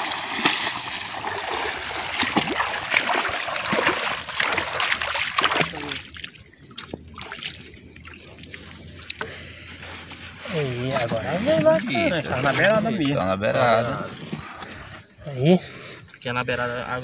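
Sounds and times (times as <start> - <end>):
water splashing off net: 0.0 - 8.7
water dripping: 0.0 - 9.4.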